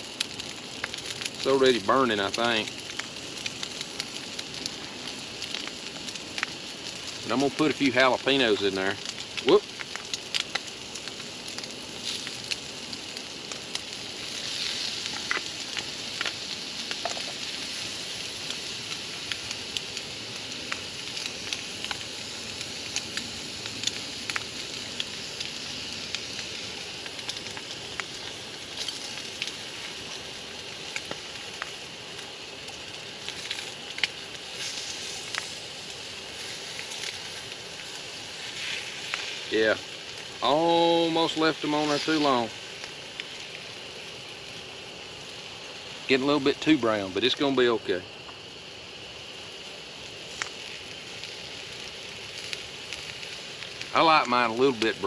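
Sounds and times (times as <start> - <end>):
crackles and pops: 0.0 - 55.0
eggs sizzling in a pot: 0.0 - 55.0.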